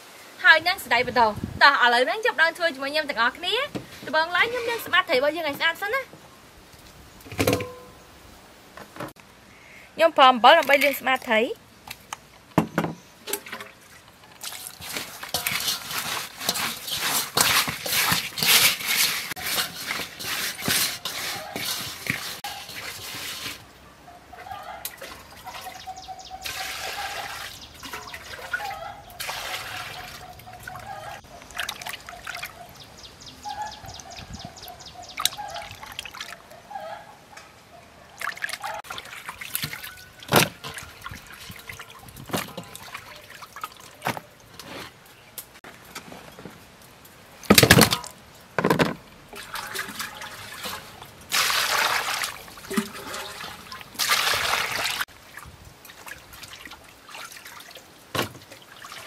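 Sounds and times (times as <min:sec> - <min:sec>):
water sloshing in a metal basin: 0:07.4 - 0:08.0, 0:13.2 - 0:23.7, 0:24.3 - 0:32.9, 0:35.1 - 0:37.1, 0:38.0 - 0:45.2, 0:47.4 - 0:59.0.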